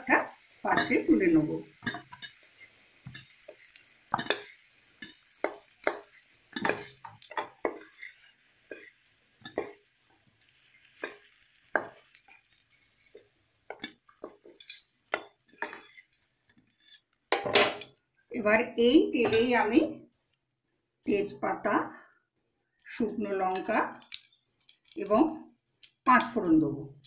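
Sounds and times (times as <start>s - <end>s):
oil sizzling: 0.0s - 19.9s, 23.0s - 27.0s
metal spatula scraping and knocking: 1.8s - 9.8s, 13.0s - 18.0s.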